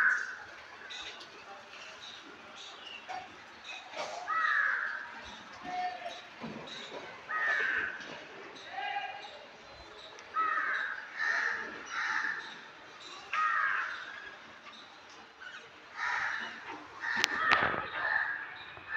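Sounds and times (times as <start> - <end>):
crow cawing: 4.2 - 5.0, 7.3 - 8.0, 10.4 - 12.6, 13.3 - 14.2, 16.0 - 18.4.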